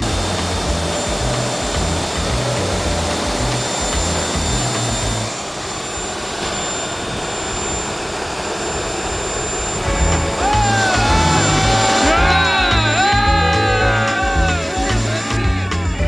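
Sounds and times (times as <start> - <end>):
turbojet engine roaring with whine: 0.0 - 16.0
background music: 9.9 - 16.0.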